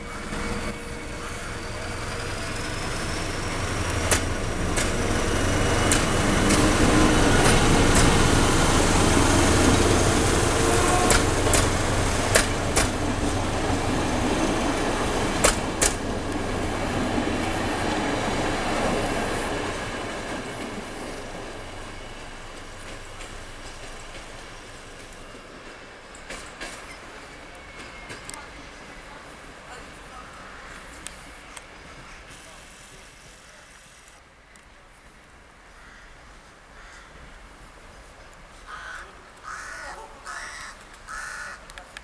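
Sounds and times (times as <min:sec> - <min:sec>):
diesel locomotive engine drone: 0:00.0 - 0:35.7
wheel clacks over rail joints: 0:03.8 - 0:08.5, 0:11.0 - 0:13.4, 0:15.3 - 0:16.4.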